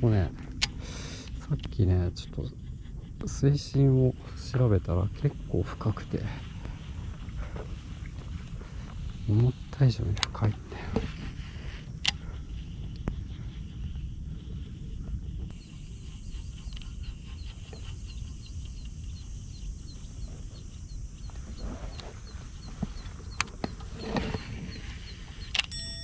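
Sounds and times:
wind rumbling on microphone: 0:00.0 - 0:26.0
faint high chirp: 0:15.5 - 0:26.0
sharp clicks: 0:25.4 - 0:25.8.

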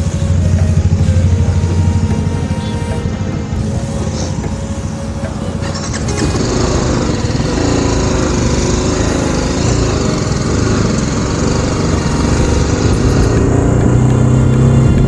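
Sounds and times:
motorcycle engine droning: 0:00.0 - 0:15.0.

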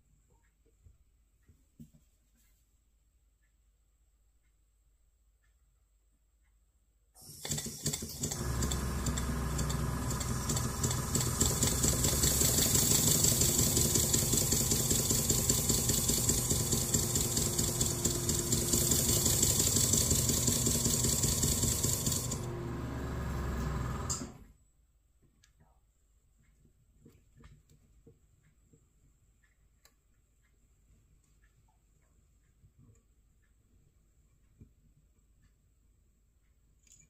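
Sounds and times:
model steam engine chuffing: 0:07.3 - 0:24.2.

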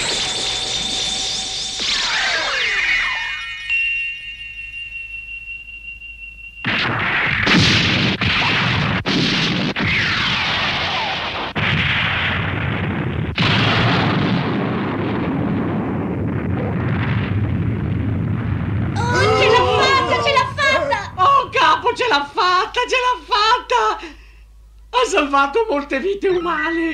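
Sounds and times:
thin high whine: 0:00.0 - 0:07.6
explosion rumble: 0:06.8 - 0:19.0.

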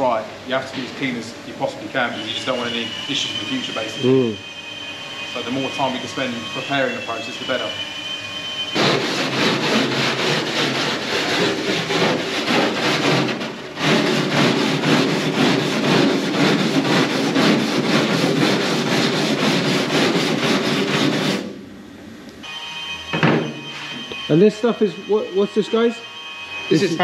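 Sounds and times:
wire brush scrubbing metal: 0:08.8 - 0:21.4.

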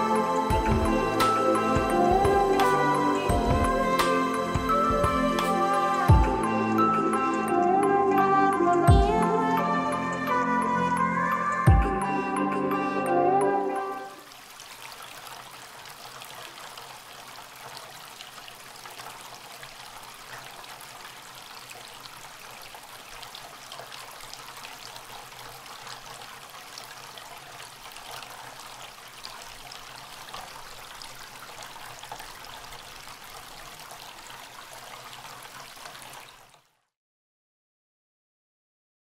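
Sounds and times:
fountain water trickling over stones: 0:14.1 - 0:36.9.

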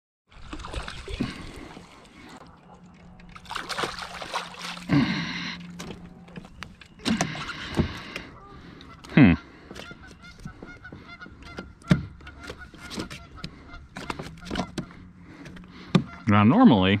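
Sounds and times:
fish thrashing and splashing: 0:00.3 - 0:15.9
geese honking: 0:04.9 - 0:16.7.

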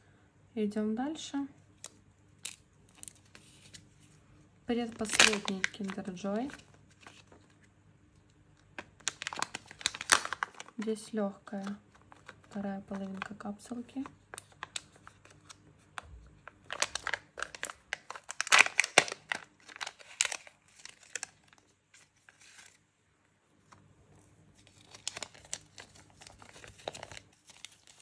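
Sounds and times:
plastic packaging crinkling and tearing: 0:01.8 - 0:03.8, 0:04.7 - 0:22.8, 0:24.6 - 0:28.0
paper leaflet unfolding: 0:05.0 - 0:07.6, 0:16.7 - 0:22.8, 0:24.6 - 0:28.0.

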